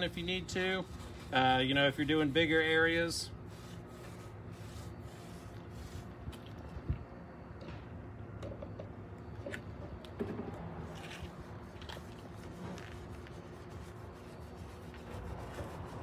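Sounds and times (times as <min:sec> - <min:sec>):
brush scrubbing metal: 0:00.0 - 0:06.4, 0:10.9 - 0:16.0
steady low hum: 0:00.0 - 0:16.0.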